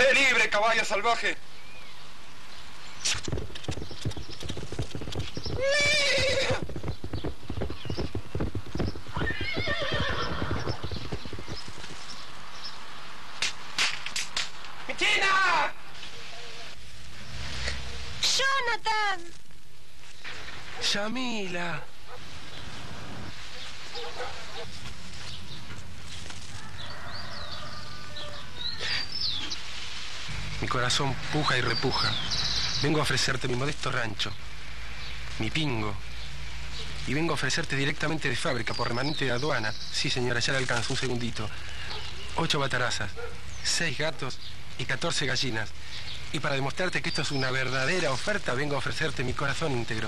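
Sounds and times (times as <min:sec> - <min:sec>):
small birds chirping: 0:00.0 - 0:13.8, 0:20.0 - 0:50.0
steady background noise: 0:00.0 - 0:50.0
horse hooves beating fast: 0:03.0 - 0:12.8
horse whinny: 0:05.6 - 0:06.7, 0:09.1 - 0:11.2.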